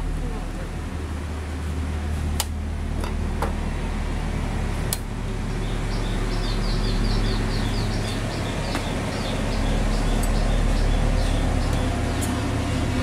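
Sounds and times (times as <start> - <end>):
steady low hum: 0.0 - 13.0
bird chirping: 5.5 - 12.3.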